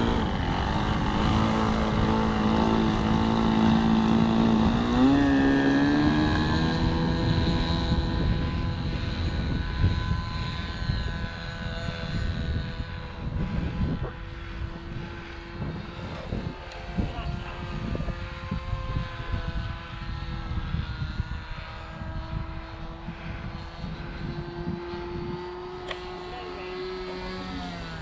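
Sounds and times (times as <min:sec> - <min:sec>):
model plane engine running: 0:00.0 - 0:28.0.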